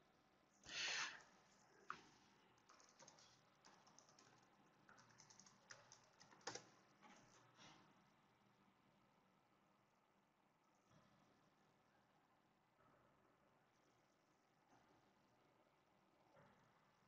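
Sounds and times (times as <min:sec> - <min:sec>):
faint keyboard typing: 0:01.0 - 0:07.9.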